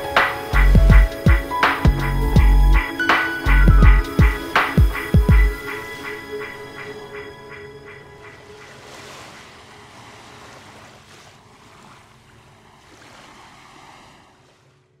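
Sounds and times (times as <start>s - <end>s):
faint held music tones: 0.0s - 10.1s
rushing noise like surf: 0.0s - 14.6s.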